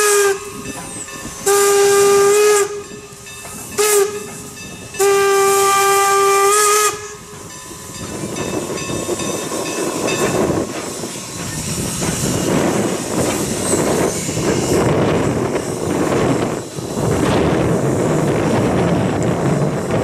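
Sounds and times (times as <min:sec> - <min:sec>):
steam whistle blast: 0:00.0 - 0:03.0, 0:03.7 - 0:04.4, 0:05.0 - 0:07.3
passing train rush: 0:00.0 - 0:20.0
steam locomotive exhaust: 0:00.0 - 0:20.0.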